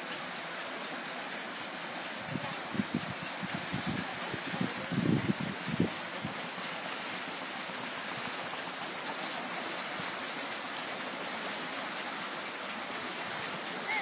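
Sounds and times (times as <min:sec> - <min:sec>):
river rushing: 0:00.0 - 0:14.0.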